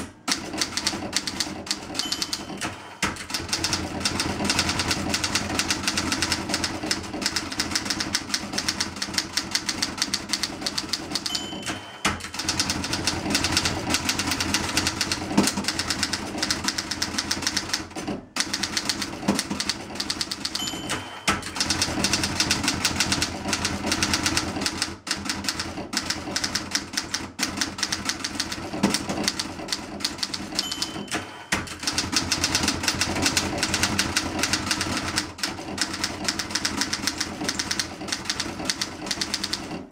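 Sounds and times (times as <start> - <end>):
typewriter typing fast: 0.0 - 39.9
typewriter margin bell ringing: 0.6 - 4.7, 7.3 - 15.1, 18.4 - 24.3, 30.1 - 35.1.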